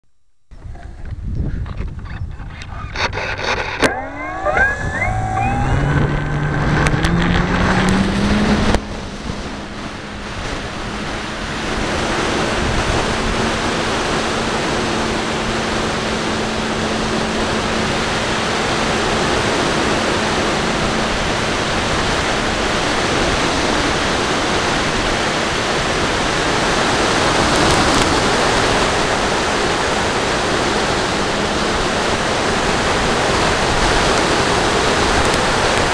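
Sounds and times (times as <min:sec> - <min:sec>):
wind rushing on microphone: 0:00.6 - 0:35.9
clicks: 0:01.7 - 0:08.0
electric motor whine: 0:03.0 - 0:23.6.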